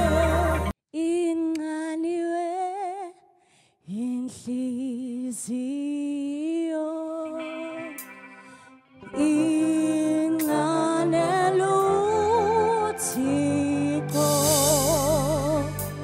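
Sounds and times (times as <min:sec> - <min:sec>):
gospel band music: 0:00.0 - 0:00.7, 0:09.1 - 0:16.0
woman singing alone: 0:00.0 - 0:03.2, 0:03.9 - 0:08.0, 0:09.0 - 0:16.0.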